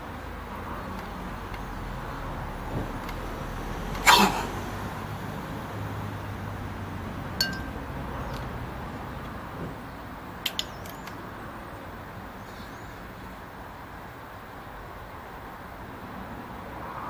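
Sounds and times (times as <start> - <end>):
outdoor background noise: 0.0 - 17.0
short high clinks: 7.4 - 7.8.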